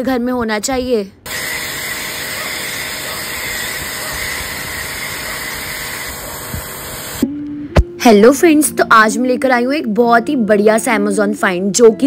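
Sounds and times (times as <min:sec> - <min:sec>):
pressure washer spraying water: 0:01.3 - 0:07.2.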